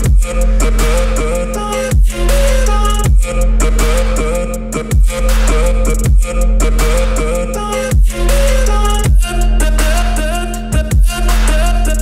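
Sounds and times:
heavy kick drum hit: 0.0 - 0.3, 3.0 - 3.4, 6.0 - 6.4, 9.0 - 9.3
deep bass note: 0.0 - 1.4, 2.0 - 12.0.

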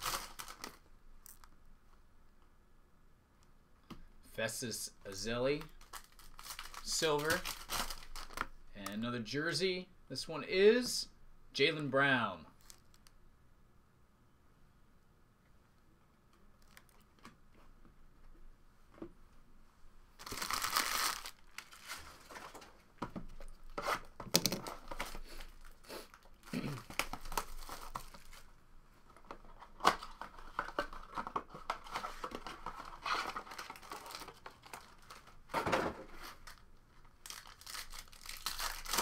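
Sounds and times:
card packs crinkling: 0.0 - 1.5, 5.1 - 9.0, 12.6 - 13.0, 20.2 - 22.8, 23.4 - 28.5, 29.4 - 39.0.

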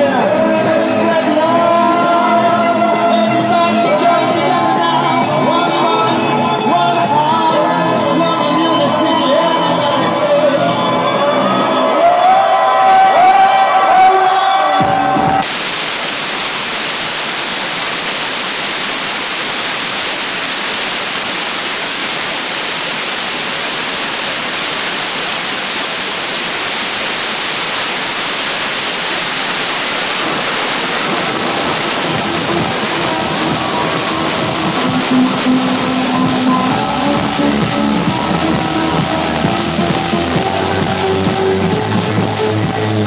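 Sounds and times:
loud static hiss: 0.0 - 43.0
faint club music: 29.6 - 43.0.

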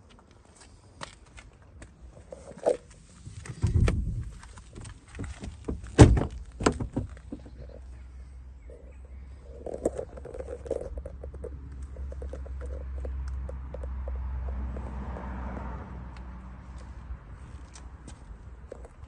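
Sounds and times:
wind rumbling on microphone: 3.1 - 7.8.

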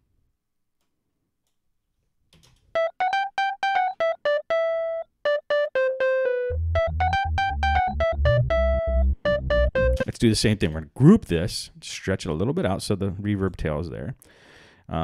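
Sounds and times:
synthesizer melody: 2.8 - 10.1
deep pulsing bass: 6.5 - 10.0.

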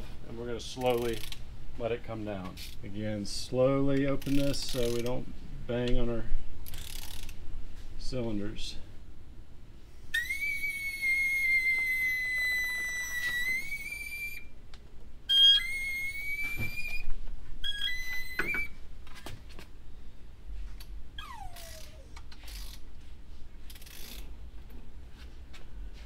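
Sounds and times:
air whistling from valve: 10.1 - 14.5, 15.3 - 18.7
falling squeak: 10.1 - 14.5, 15.3 - 18.8, 21.2 - 22.7.

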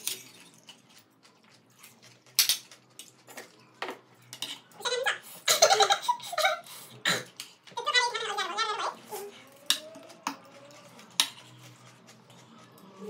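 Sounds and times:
people talking: 7.8 - 9.3.

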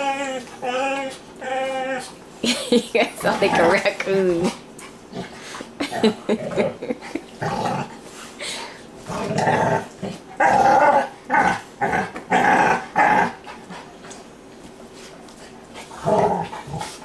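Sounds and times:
dogs growling: 0.0 - 8.1, 9.0 - 14.0, 15.8 - 17.0.

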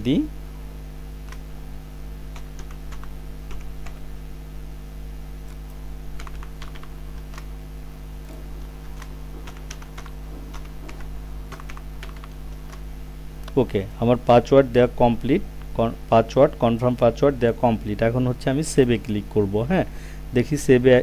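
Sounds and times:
low hum: 0.0 - 20.4
keyboard keys clicking: 2.4 - 4.1, 5.5 - 7.5, 8.2 - 12.8.

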